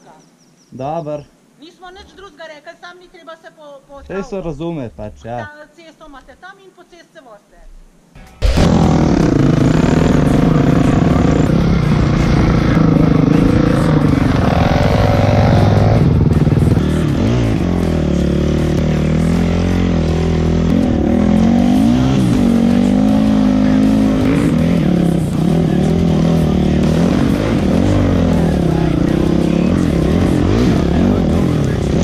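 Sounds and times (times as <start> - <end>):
dirt bike engine revving: 8.3 - 32.0.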